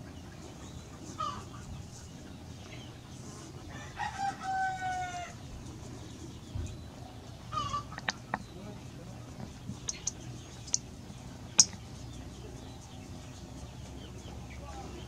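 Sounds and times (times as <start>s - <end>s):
rooster crowing: 3.7s - 5.4s.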